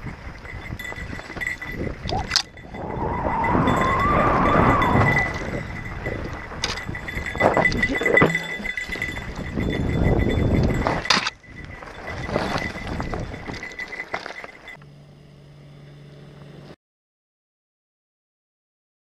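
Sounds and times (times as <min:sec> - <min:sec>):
wind rushing: 0:01.9 - 0:13.5
bike clattering over bumps: 0:03.9 - 0:14.8
steady low hum: 0:05.6 - 0:16.8.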